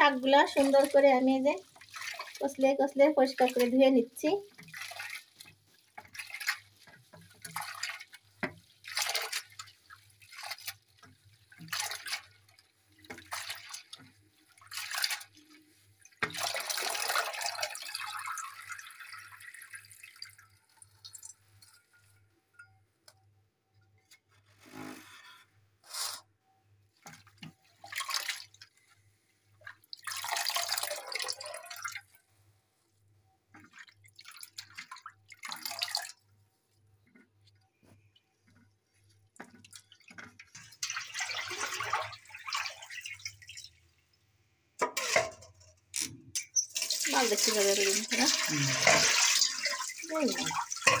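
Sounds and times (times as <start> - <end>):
water pouring into basin: 0.0 - 21.7, 27.8 - 28.8, 29.7 - 32.2, 33.6 - 36.2, 39.6 - 43.8, 46.6 - 51.0
water splashes and drips: 0.0 - 22.2, 27.0 - 32.2, 33.5 - 43.8, 46.4 - 51.0
hands swishing leaves in water: 4.4 - 16.6.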